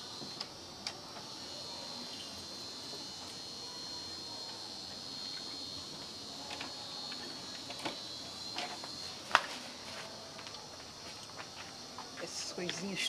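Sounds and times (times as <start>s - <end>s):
high-pitched insect trilling: 0.0s - 9.5s.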